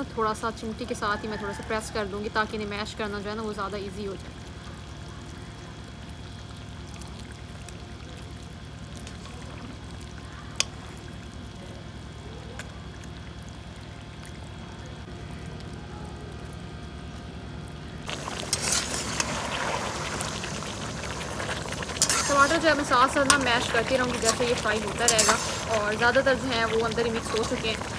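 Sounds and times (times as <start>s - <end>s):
food sizzling and scraping in wok: 18.1s - 27.9s.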